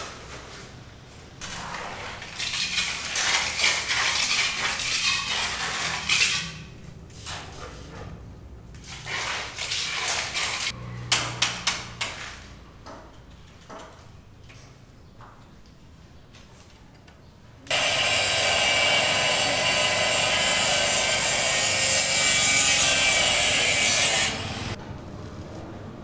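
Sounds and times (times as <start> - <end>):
rasping scraping: 1.5 - 6.7, 17.7 - 24.8.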